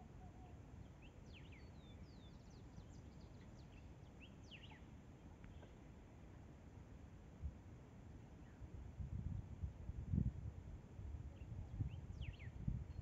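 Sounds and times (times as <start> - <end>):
small birds chirping: 0.2 - 5.8, 11.3 - 13.0.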